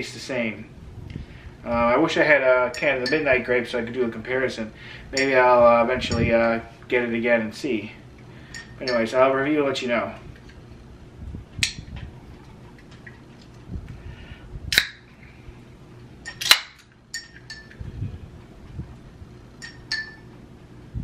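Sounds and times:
light metallic clinks: 0:08.5 - 0:09.1, 0:17.1 - 0:17.8, 0:19.6 - 0:20.3.

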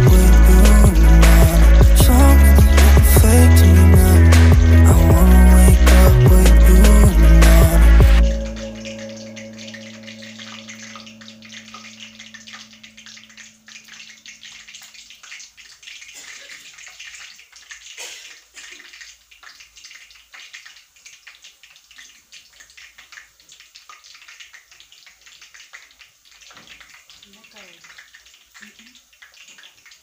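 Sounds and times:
background music: 0:00.0 - 0:13.8
dough sizzling in hot oil: 0:09.0 - 0:30.0.

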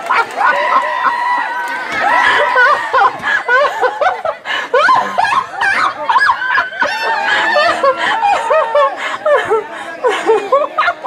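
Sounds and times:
people laughing: 0:00.0 - 0:11.0
speech: 0:03.5 - 0:11.0.

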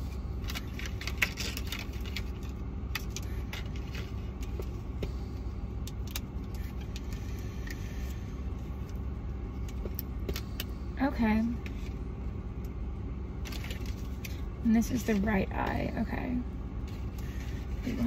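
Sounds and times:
road rumble inside car: 0:00.0 - 0:18.0.

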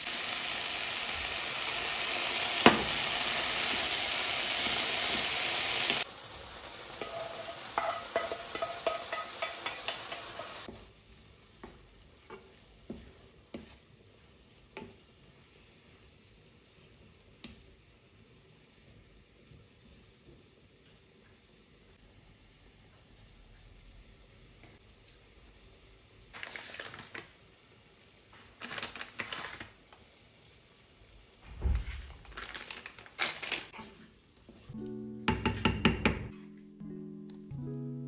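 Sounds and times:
mushrooms and onions sizzling: 0:00.0 - 0:34.8
wooden spatula scraping pan: 0:07.0 - 0:10.7.

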